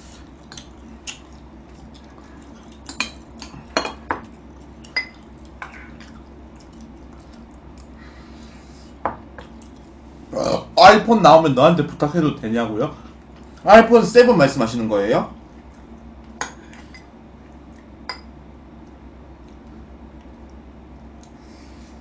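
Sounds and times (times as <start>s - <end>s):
fork clinking against bowls: 2.8s - 5.9s.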